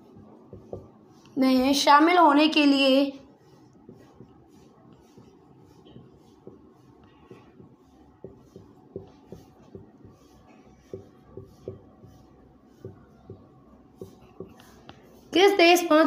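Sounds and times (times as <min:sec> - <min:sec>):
marker scratching on whiteboard: 0:00.0 - 0:16.0
marker tip tapping whiteboard: 0:00.5 - 0:00.9, 0:07.3 - 0:15.0.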